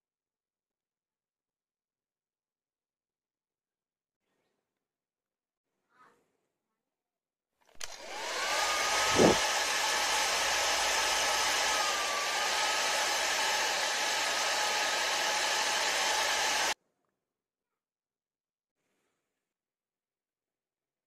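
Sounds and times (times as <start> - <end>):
small electric motor whining: 7.8 - 16.8.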